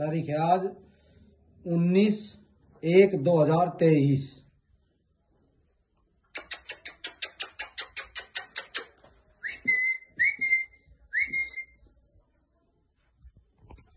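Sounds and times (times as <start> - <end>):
rising whistles: 9.4 - 11.8.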